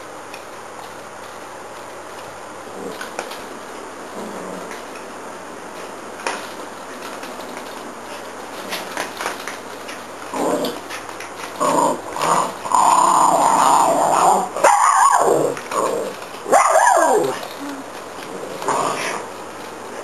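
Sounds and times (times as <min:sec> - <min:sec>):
small dog growling: 0:02.7 - 0:03.1, 0:04.1 - 0:04.8, 0:10.3 - 0:10.9, 0:11.6 - 0:19.3
dog sliding cries: 0:16.4 - 0:17.6.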